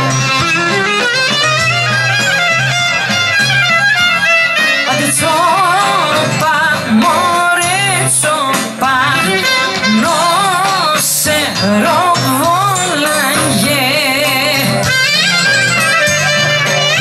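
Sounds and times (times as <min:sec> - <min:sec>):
live folk band music: 0:00.0 - 0:17.0.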